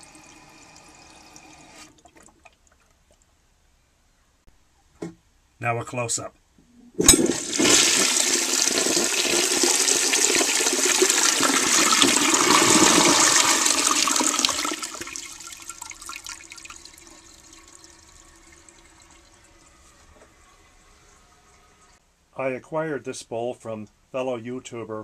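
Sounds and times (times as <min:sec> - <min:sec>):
toilet flushing: 0:00.0 - 0:02.4, 0:07.0 - 0:22.0
faint trickle of water: 0:15.4 - 0:22.0.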